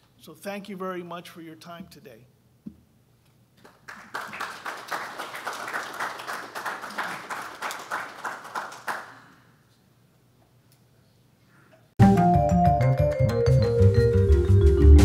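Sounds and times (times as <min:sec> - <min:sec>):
audience applauding: 0:03.6 - 0:09.4.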